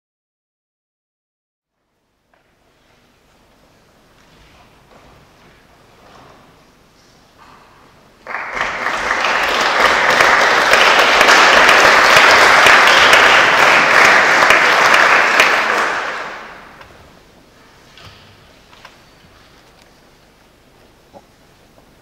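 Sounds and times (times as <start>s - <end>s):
audience applauding: 8.2s - 16.8s.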